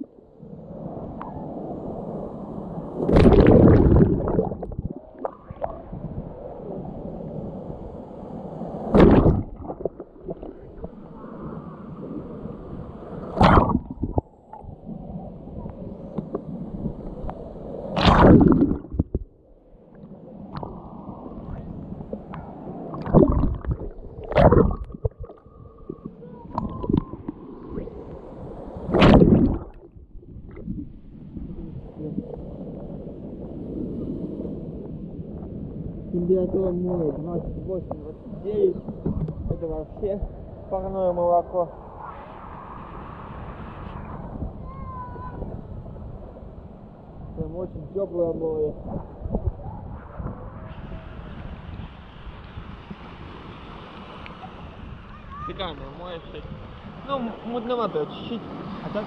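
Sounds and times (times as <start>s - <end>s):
waves splashing: 0.0s - 59.0s
water gurgling and sloshing: 2.5s - 40.7s.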